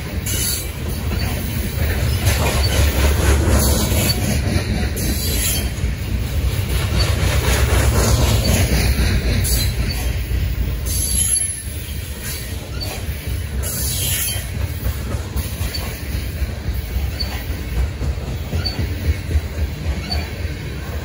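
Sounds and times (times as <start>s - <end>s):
train wheels rumbling on rails: 0.0s - 21.0s
high wheel squeals: 0.2s - 3.0s, 3.7s - 4.3s, 5.2s - 5.8s, 9.4s - 10.3s, 10.9s - 14.6s, 15.4s - 16.1s, 16.9s - 17.6s, 18.4s - 19.1s, 19.9s - 20.5s.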